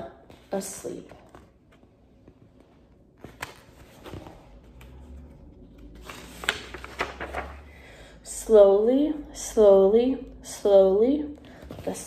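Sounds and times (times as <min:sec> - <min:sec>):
book pages rustling: 0:00.3 - 0:07.7.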